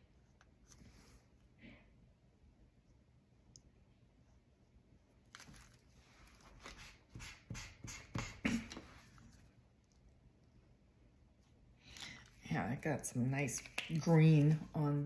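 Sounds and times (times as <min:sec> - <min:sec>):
marker tip rubbing strokes: 0:06.6 - 0:08.8.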